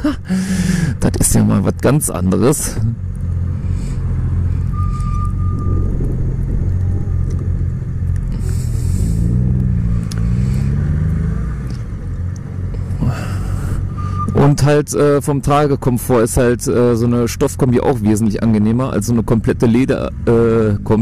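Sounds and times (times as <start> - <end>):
wind hiss: 3.5 - 11.3.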